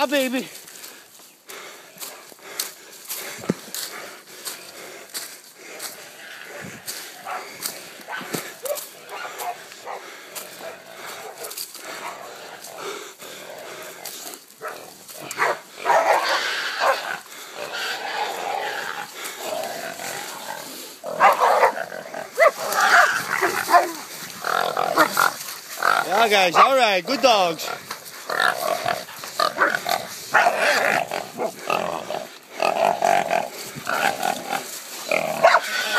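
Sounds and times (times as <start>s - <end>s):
dogs barking: 7.2s - 12.4s, 14.6s - 17.2s, 21.1s - 24.0s, 24.8s - 25.5s, 26.1s - 27.0s, 28.8s - 31.6s, 35.4s - 35.9s
pig squealing: 15.9s - 26.7s, 27.6s - 35.9s.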